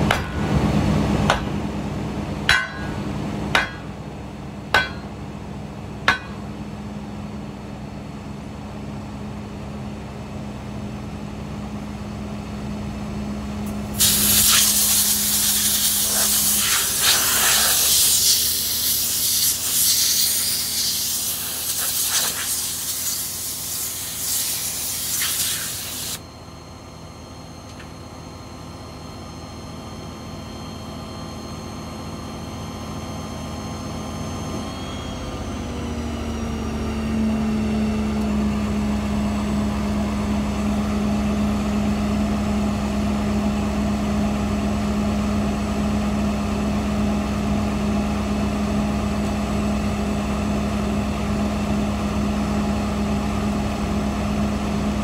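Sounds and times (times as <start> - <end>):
compressed air hissing: 13.9 - 26.2.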